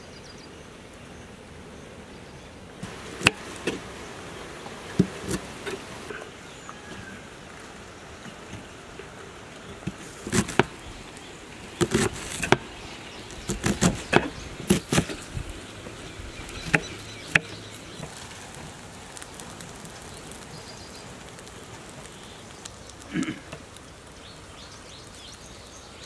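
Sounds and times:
knife chopping on cutting board: 11.8 - 12.6, 13.5 - 15.2.

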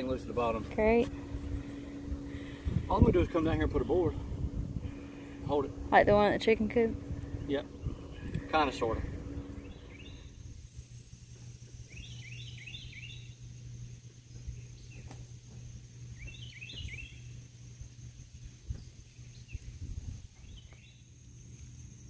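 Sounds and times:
low hum: 0.0 - 22.0
steady high-pitched whine: 0.0 - 22.0
songbird chirping: 7.2 - 22.0.

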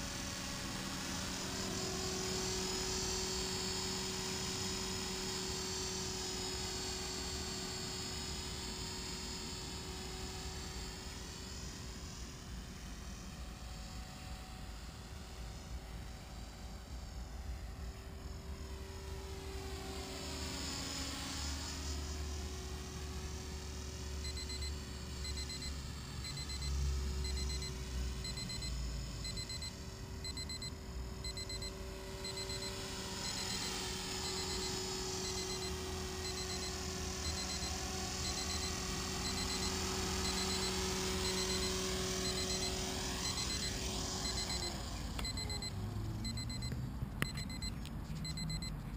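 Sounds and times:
rc helicopter rotor whining: 0.0 - 48.9
short electronic beeps: 24.2 - 48.8.

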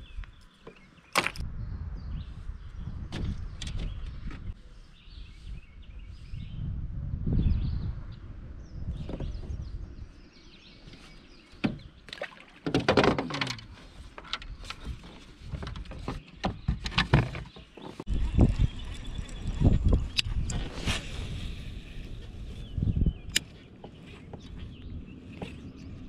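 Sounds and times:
low rumbling: 1.4 - 10.7, 18.1 - 26.0
kayak gear knocks and clatters: 11.6 - 18.1.

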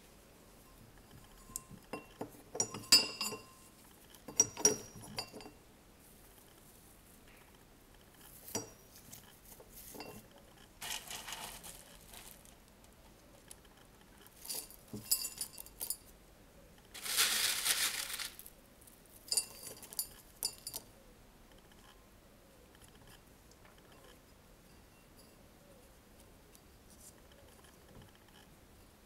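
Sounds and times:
potting mix clinking against pot: 0.7 - 5.6, 8.4 - 9.0, 9.7 - 12.4
handling rustles: 8.2 - 12.7, 16.9 - 20.7.

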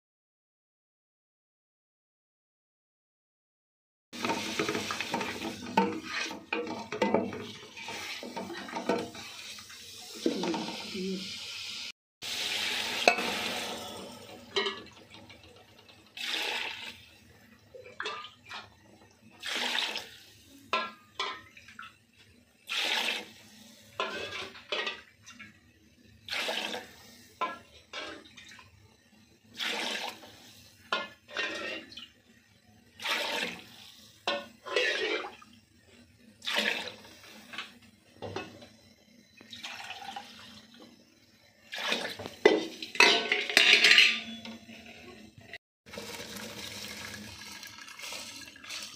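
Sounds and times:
water pouring into metal pot: 12.2 - 22.0, 22.6 - 25.6, 26.2 - 32.1, 33.0 - 35.6, 39.5 - 40.8, 41.6 - 44.2, 45.9 - 48.9.

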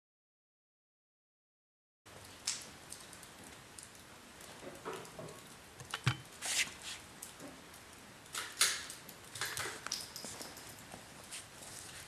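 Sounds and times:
handling rustling: 5.8 - 7.0.

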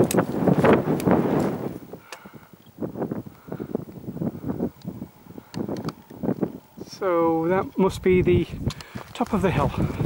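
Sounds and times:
wind buffeting microphone: 0.0 - 10.0.

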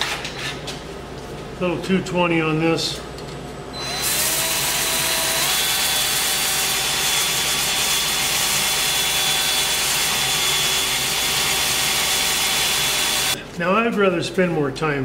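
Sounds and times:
drill motor whine: 3.8 - 13.4.

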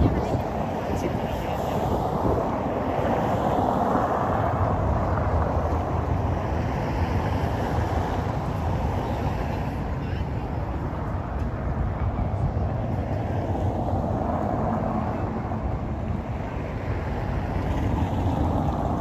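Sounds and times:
people's voices: 0.0 - 2.6, 9.0 - 13.4
road traffic rumble: 0.0 - 19.0.

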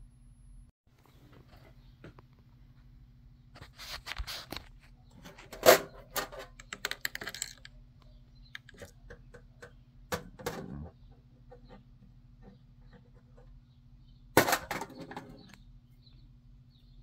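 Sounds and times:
small parts clicking and rattling: 5.4 - 7.8, 8.5 - 9.8.

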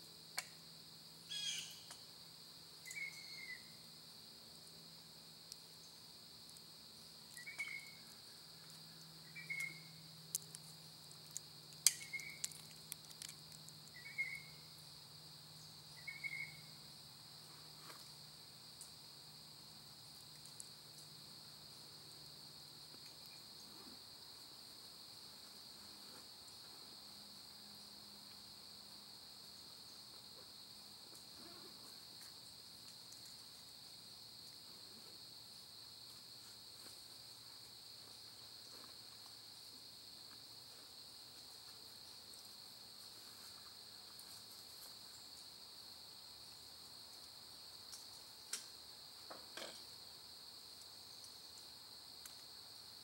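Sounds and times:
crickets chirping: 0.0 - 53.0.

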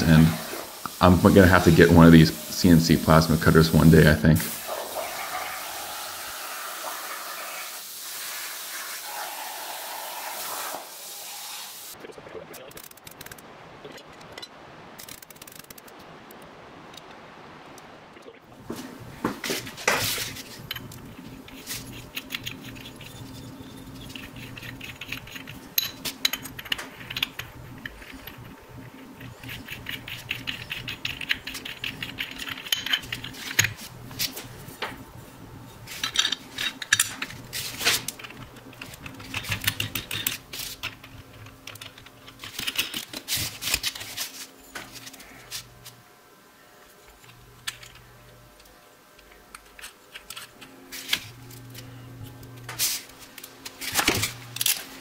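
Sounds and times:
steady low hum: 12.0 - 55.0
small metal parts clinking: 35.9 - 37.4.

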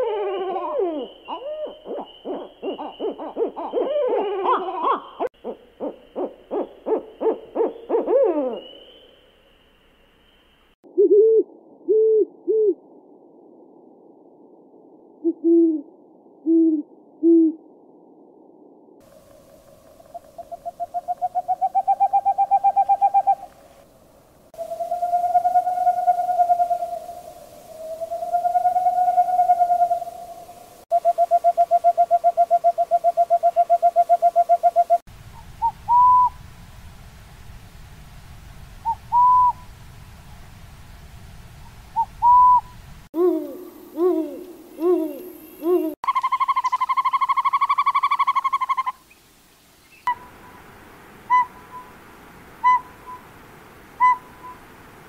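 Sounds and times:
owl hoots: 0.0 - 9.0, 19.1 - 23.6, 24.6 - 36.4, 38.8 - 39.6, 42.0 - 49.0, 51.3 - 51.9, 52.6 - 53.2, 54.0 - 54.6
owl trilling call: 0.0 - 9.0, 19.9 - 23.5, 24.6 - 30.3, 38.8 - 39.6, 42.0 - 49.1, 51.3 - 51.9, 52.6 - 53.2, 54.0 - 54.6.

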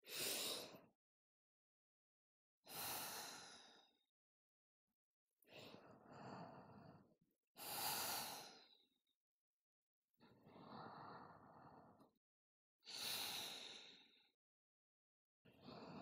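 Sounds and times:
woman breathing deeply: 2.7 - 4.0, 5.5 - 8.9, 10.3 - 12.0, 12.9 - 14.3, 15.6 - 16.0.

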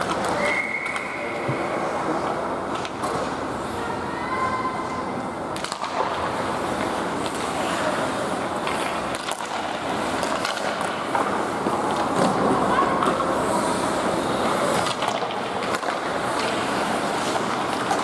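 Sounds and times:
hockey sticks clacking: 0.0 - 3.5, 5.5 - 18.0
skates scraping on ice: 5.6 - 18.0.

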